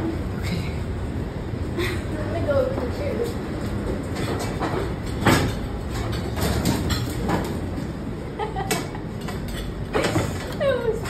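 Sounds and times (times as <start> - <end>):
steady low rumble: 0.0 - 6.2.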